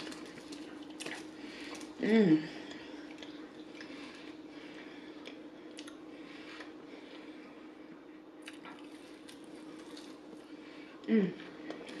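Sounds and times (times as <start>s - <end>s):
chewing crunchy food: 0.0s - 2.0s, 2.6s - 7.3s, 8.4s - 10.5s
steady low hum: 0.0s - 12.0s.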